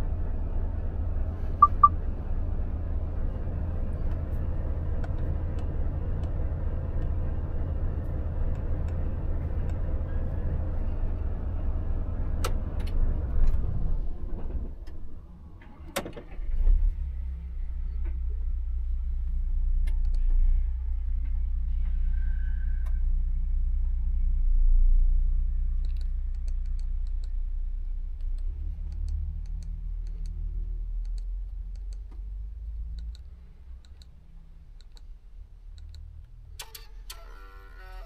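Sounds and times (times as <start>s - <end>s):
button clicks: 1.6s - 1.9s
short beep: 1.6s - 2.0s.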